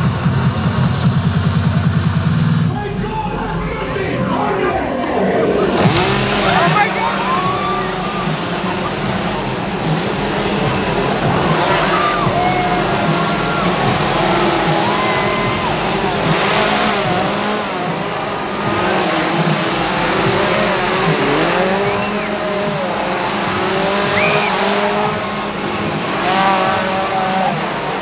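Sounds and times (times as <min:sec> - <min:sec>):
crowd shrieking and yelling: 0:00.0 - 0:28.0
chainsaws idling and revving: 0:05.8 - 0:28.0.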